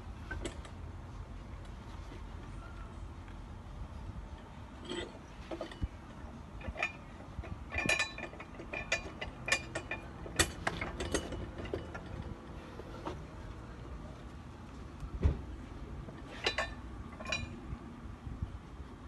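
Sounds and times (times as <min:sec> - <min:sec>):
metal clanks from tire changer: 0:04.8 - 0:06.0, 0:06.6 - 0:12.4, 0:16.0 - 0:17.6.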